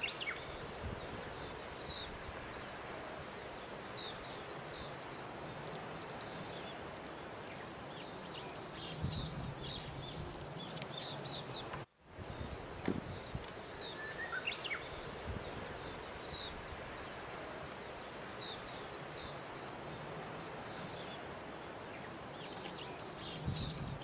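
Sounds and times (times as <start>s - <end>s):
background hiss: 0.0s - 24.0s
small birds chirping: 0.0s - 24.0s
faint clicks: 9.6s - 11.9s, 22.4s - 23.8s.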